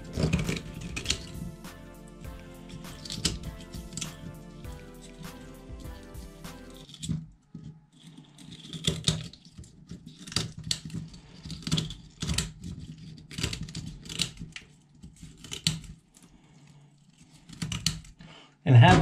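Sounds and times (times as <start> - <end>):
scissors snipping shell: 0.0 - 1.4, 2.4 - 7.1.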